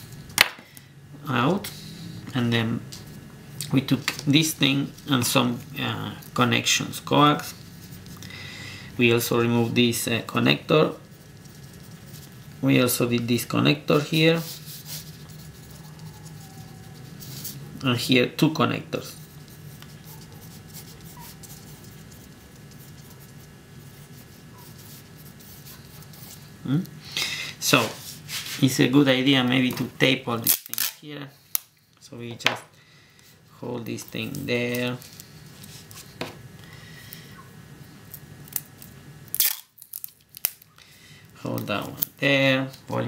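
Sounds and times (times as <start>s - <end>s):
faint steady hum: 0.0s - 43.0s
pencil scratching on paper: 10.9s - 12.4s, 14.4s - 17.6s, 19.0s - 26.4s
adhesive tape clicks and rustling: 30.4s - 31.7s, 38.1s - 40.7s.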